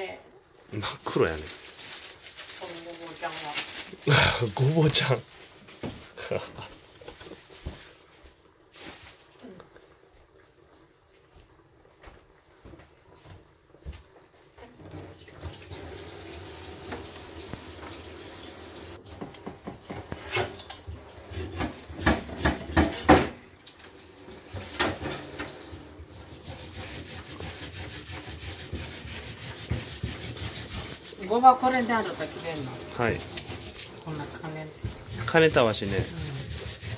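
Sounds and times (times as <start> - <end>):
kitchen tap running into sink: 14.8 - 36.9
knocks and rubbing: 21.3 - 23.4, 26.3 - 31.1, 34.8 - 36.9.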